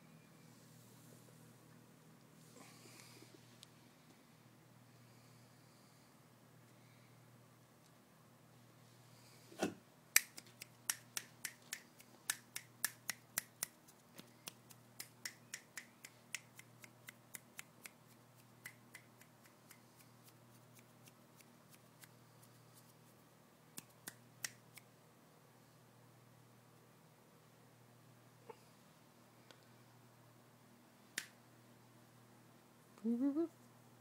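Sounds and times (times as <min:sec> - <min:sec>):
faint low hum: 0:00.0 - 0:34.0
person making sharp clicks: 0:10.2 - 0:22.1, 0:23.8 - 0:24.9.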